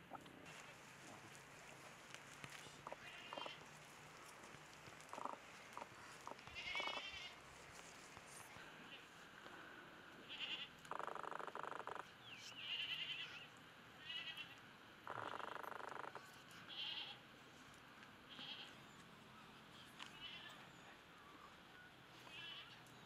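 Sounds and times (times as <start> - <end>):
livestock bleating: 2.9 - 3.6, 6.3 - 7.4, 10.2 - 10.7, 12.6 - 15.6, 16.7 - 17.2, 18.3 - 18.8, 20.1 - 20.6, 22.2 - 22.8.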